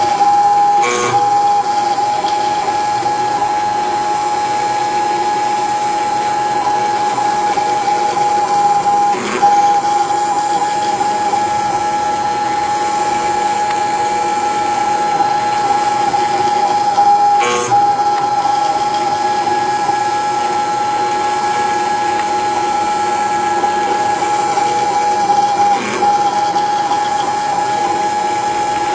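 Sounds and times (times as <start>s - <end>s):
router spindle whine: 0.0s - 28.9s
click: 13.6s - 13.9s.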